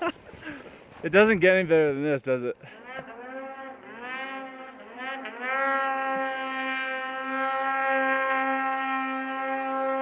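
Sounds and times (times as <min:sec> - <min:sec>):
snowmobile engine revving: 0:02.6 - 0:10.0.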